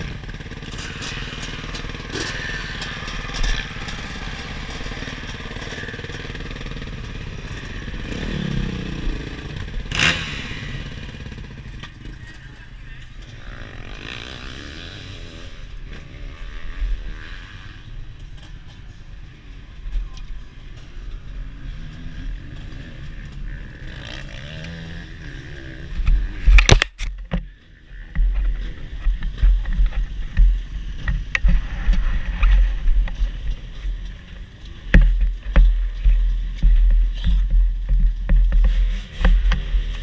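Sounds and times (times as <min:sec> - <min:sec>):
motorbike engine at low revs: 0:00.0 - 0:18.8, 0:20.0 - 0:40.0
low rumbling on microphone: 0:25.9 - 0:40.0.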